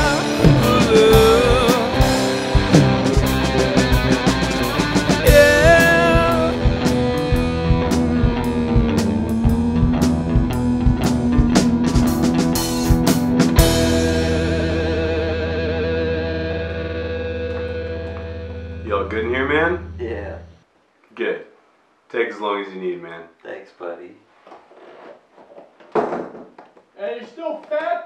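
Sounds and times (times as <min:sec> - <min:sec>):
drum kit: 0:00.0 - 0:18.6
electric guitar: 0:00.0 - 0:20.6.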